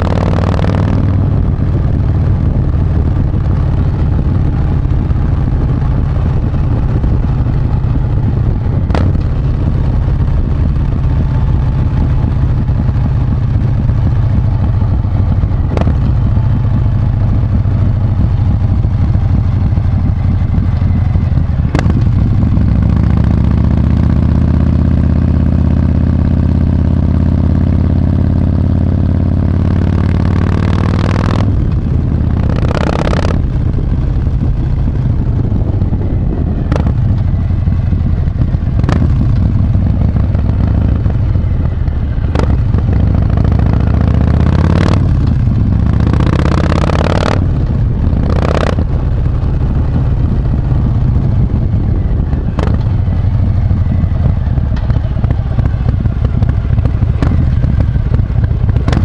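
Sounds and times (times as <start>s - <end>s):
motorcycle engine drone: 0.0s - 59.0s
rushing air: 31.2s - 59.0s.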